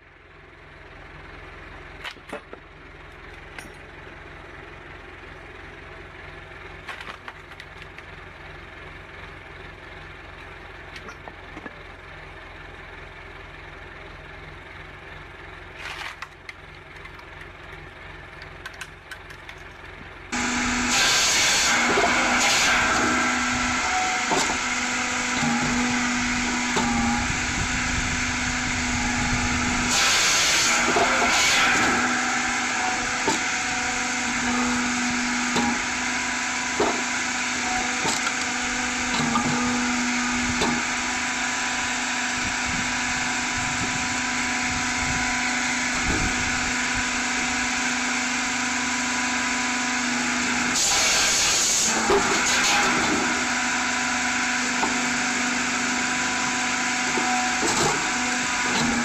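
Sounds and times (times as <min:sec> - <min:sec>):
firewood processor running: 0:00.0 - 0:59.0
wood splitting and dropping knocks: 0:02.0 - 0:02.7, 0:06.8 - 0:08.0, 0:20.8 - 0:24.8, 0:33.2 - 0:33.6, 0:34.7 - 0:35.9, 0:36.7 - 0:37.2, 0:37.9 - 0:41.0, 0:50.8 - 0:53.6, 0:56.5 - 0:59.0
saw cutting through log: 0:20.3 - 0:59.0.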